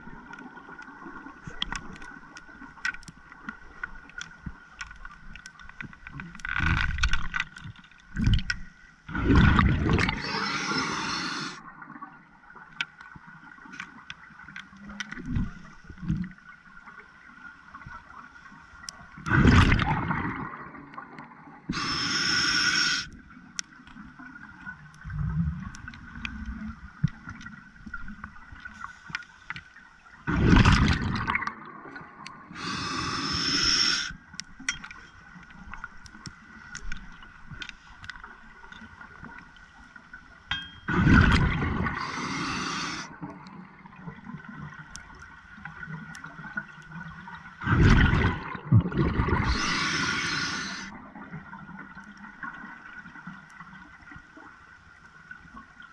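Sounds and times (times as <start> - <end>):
exhaled bubbles gurgling: 9.1 - 12.2, 19.2 - 23.1, 30.3 - 34.1, 40.9 - 44.8, 46.5 - 53.0
regulator inhale hiss: 10.1 - 11.6, 21.7 - 23.1, 32.5 - 34.2, 41.9 - 43.2, 49.4 - 50.9.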